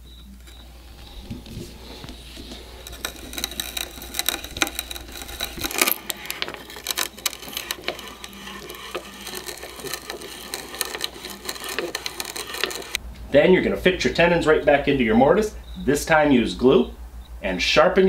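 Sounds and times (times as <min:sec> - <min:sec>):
auger bit boring through wood: 0:00.0 - 0:13.0.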